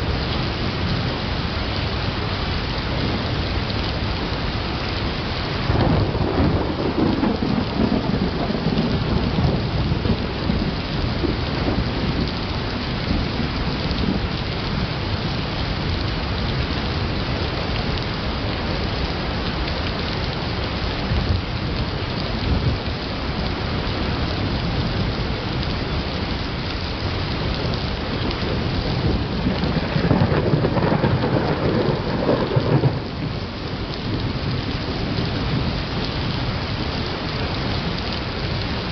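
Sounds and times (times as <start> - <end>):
heavy rain hissing: 0.0 - 38.9
thunder rumbling: 5.6 - 14.9, 27.0 - 37.3.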